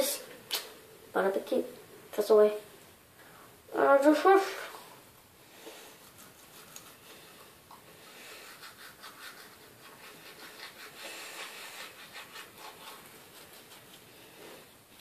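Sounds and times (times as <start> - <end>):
toothbrush scrubbing teeth: 5.9 - 14.4.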